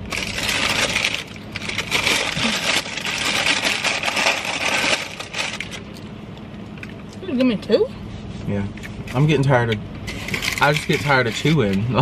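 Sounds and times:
food packaging crinkling: 0.0 - 6.1.

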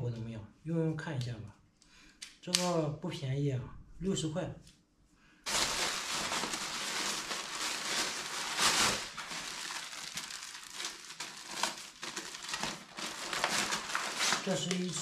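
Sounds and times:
plastic bag crinkling: 5.5 - 15.0.

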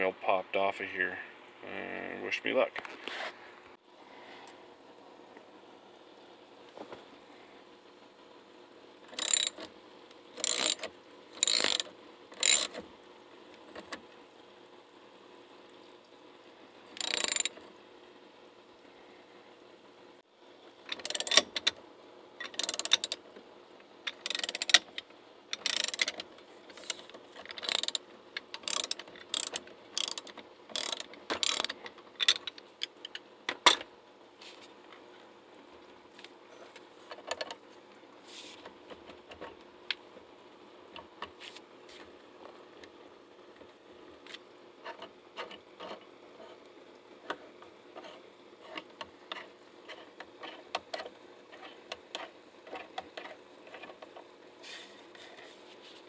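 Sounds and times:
ratchet wrench clicking: 9.1 - 9.7, 10.4 - 12.8, 17.0 - 17.6, 20.9 - 21.7, 22.4 - 23.2, 24.1 - 24.9, 25.5 - 26.2, 26.8 - 28.0, 28.6 - 32.5.

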